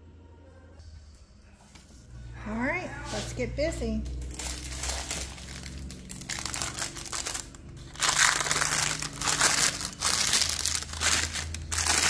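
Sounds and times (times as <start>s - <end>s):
parchment paper crinkling: 4.2s - 12.0s.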